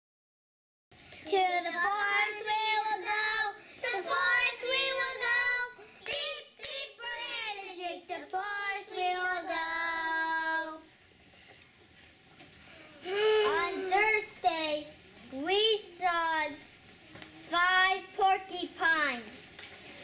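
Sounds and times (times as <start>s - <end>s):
children singing unaccompanied: 1.3s - 10.9s, 13.1s - 14.7s.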